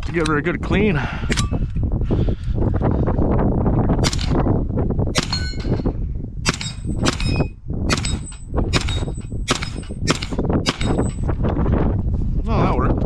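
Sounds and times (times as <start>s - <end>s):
carbine gunshots: 4.0s - 4.4s, 5.2s - 5.8s, 6.5s - 11.1s
steel target ringing: 5.2s - 5.9s.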